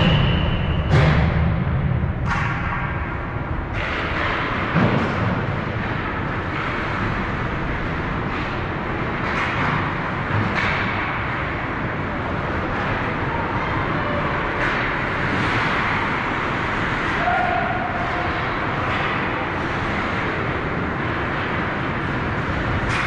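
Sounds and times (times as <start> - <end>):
ice rink noise: 0.0 - 23.0
skates scraping on ice: 18.0 - 23.0.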